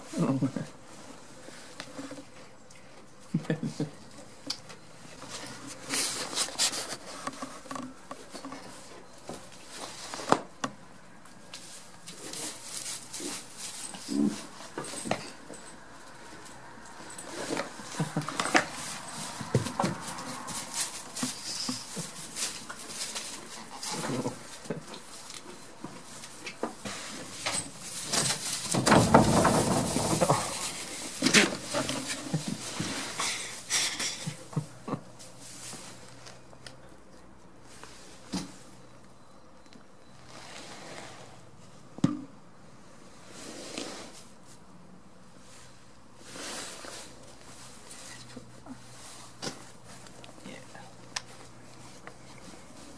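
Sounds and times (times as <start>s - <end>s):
straw rustling: 11.4s - 33.8s.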